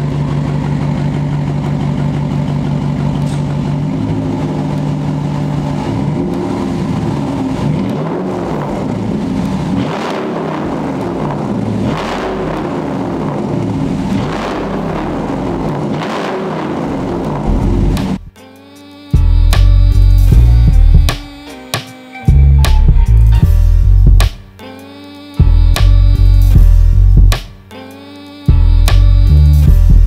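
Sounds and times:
pickup truck engine revving: 0.0s - 18.3s.

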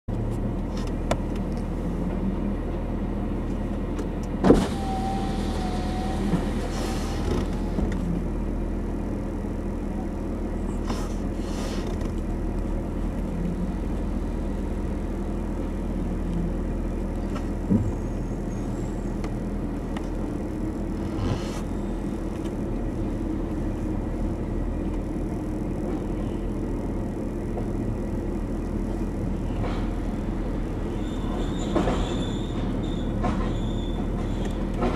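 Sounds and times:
wavering squeal: 4.7s - 7.2s, 30.9s - 34.1s.

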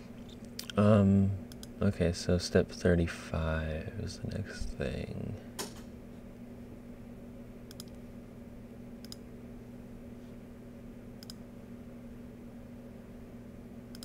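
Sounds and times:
faint low hum: 0.0s - 14.0s
computer mouse clicks: 1.5s - 1.7s, 7.7s - 8.0s, 9.0s - 9.2s, 11.2s - 11.4s.

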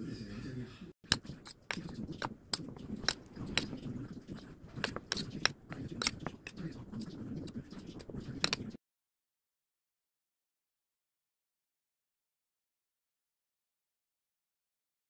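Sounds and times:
metal spoon scraping ceramic bowl: 1.1s - 8.8s.

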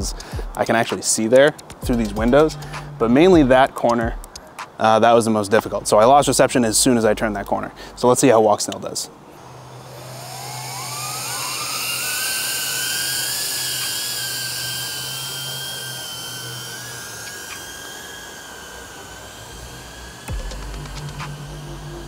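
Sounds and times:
drone motors whining: 0.0s - 4.7s, 9.3s - 22.0s.

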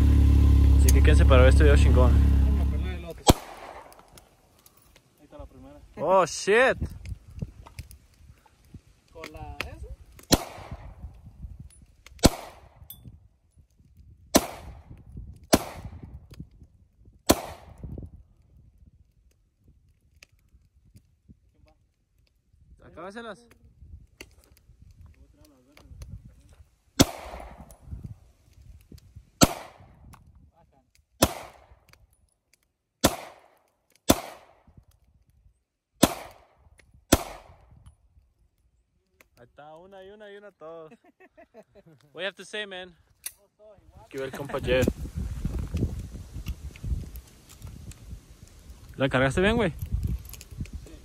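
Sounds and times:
handgun shots echoing: 3.2s - 4.2s, 10.3s - 10.8s, 27.0s - 27.7s, 29.4s - 29.8s, 31.2s - 31.7s, 33.0s - 34.6s, 36.0s - 36.5s, 37.1s - 37.6s.

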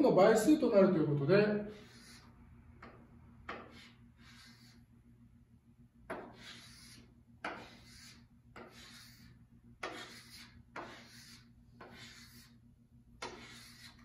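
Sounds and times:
chalk scratching on blackboard: 1.7s - 4.9s, 6.1s - 12.6s, 13.2s - 14.0s.

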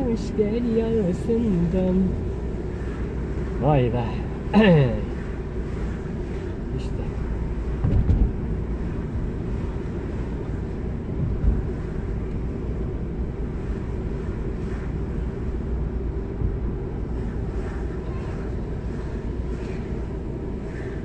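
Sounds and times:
engine and road rumble: 0.0s - 21.0s
low bump: 5.1s - 21.0s.

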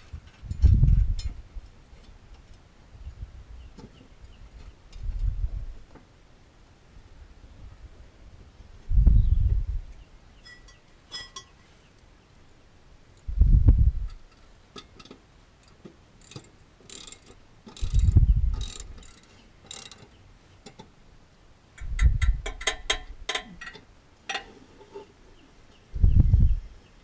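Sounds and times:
ratchet wrench clicking: 15.6s - 20.1s.

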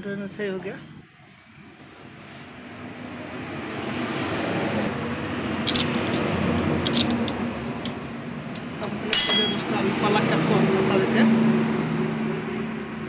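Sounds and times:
spanner clinking on metal: 5.7s - 7.4s, 8.5s - 9.7s.

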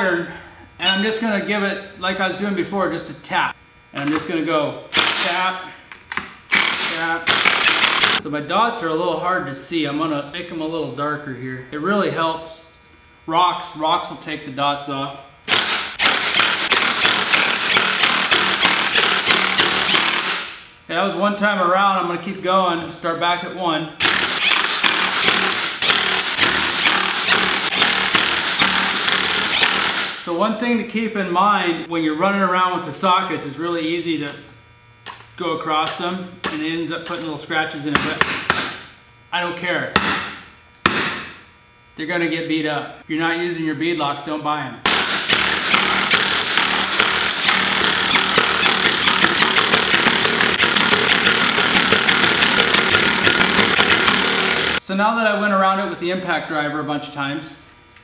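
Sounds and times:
impact driver hammering bolts: 6.5s - 8.2s, 15.5s - 20.4s, 24.0s - 30.2s, 44.9s - 54.8s.

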